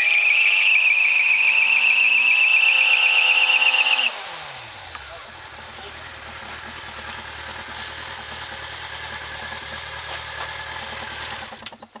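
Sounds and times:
motorcycle engine idling: 4.1 - 12.0.

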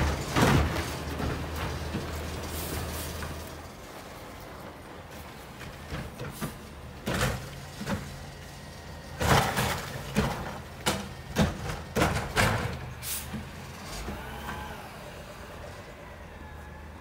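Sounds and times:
garbage truck engine hum: 0.0 - 17.0
bangs and hisses of cart arm: 12.1 - 14.7.

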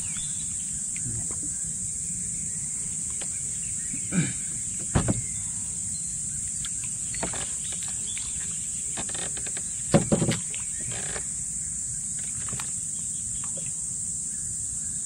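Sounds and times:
high-pitched insect chorus: 0.0 - 15.0
sharp thumps: 4.5 - 5.3.

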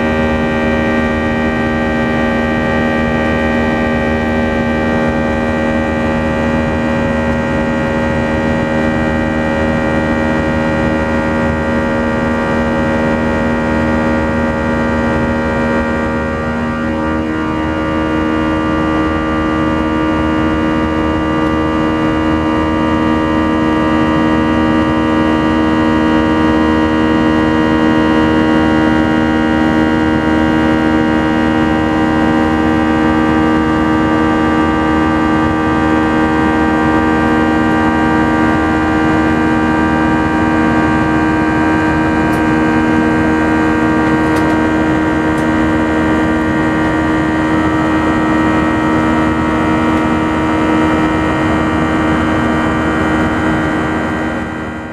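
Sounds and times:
jet engine drone in cabin: 0.0 - 54.9.

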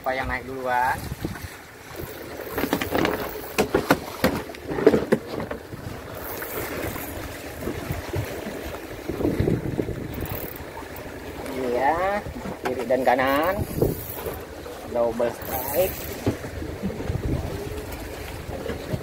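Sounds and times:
sea washing against boat hull: 0.0 - 19.0.

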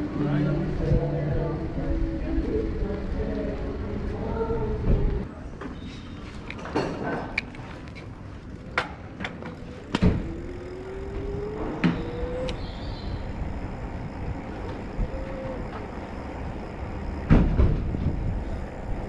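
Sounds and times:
wind and tyre noise: 0.0 - 19.0
sharp clicks and knocks: 8.7 - 10.3
electric motor whine: 9.4 - 19.0.

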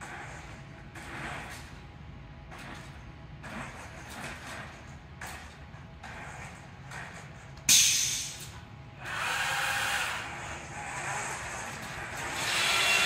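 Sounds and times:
mechanism whine: 0.0 - 13.0
robot motors whirring: 9.0 - 13.0.

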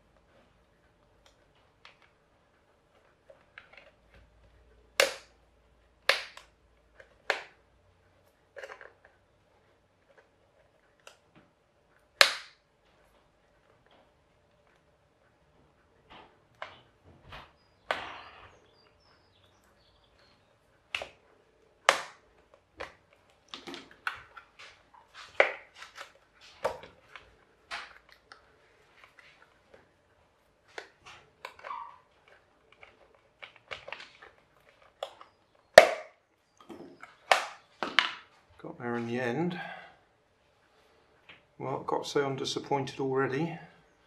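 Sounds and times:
plastic clicking and cracking: 1.0 - 15.0, 18.8 - 38.4.

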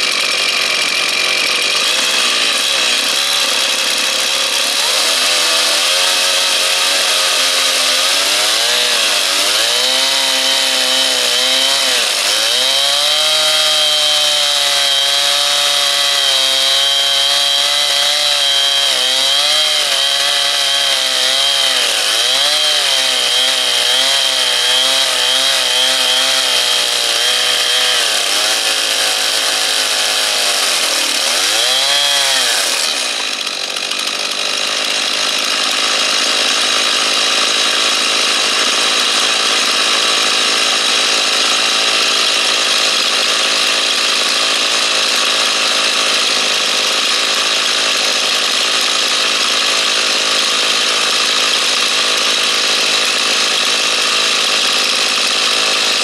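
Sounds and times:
chainsaw cutting through log: 0.0 - 56.0.

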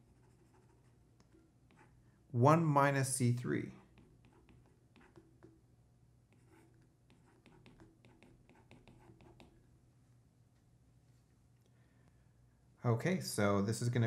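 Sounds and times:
stylus tapping on tablet screen: 7.1 - 9.6.

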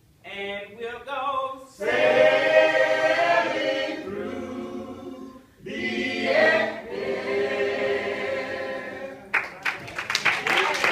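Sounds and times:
group singing hymn in harmony: 1.6 - 9.3.

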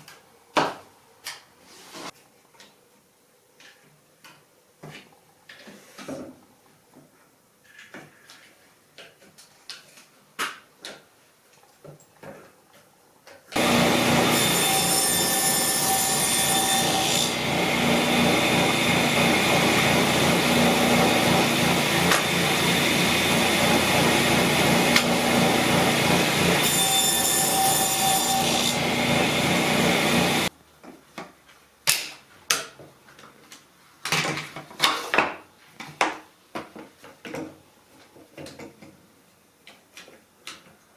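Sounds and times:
table saw running: 13.6 - 30.5.

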